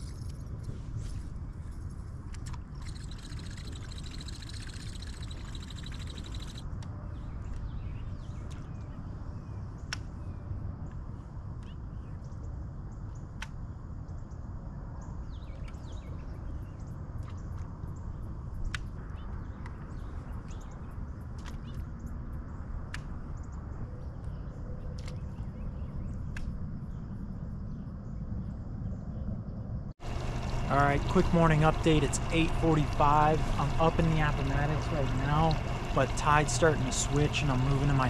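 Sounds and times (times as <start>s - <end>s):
birds calling: 2.6s - 6.6s, 30.0s - 38.0s
steady low rumble: 16.3s - 38.0s.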